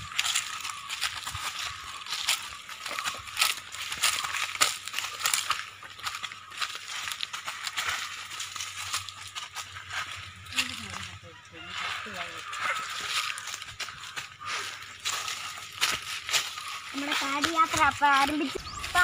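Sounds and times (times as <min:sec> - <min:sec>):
footsteps on dry leaves: 0:00.0 - 0:19.0.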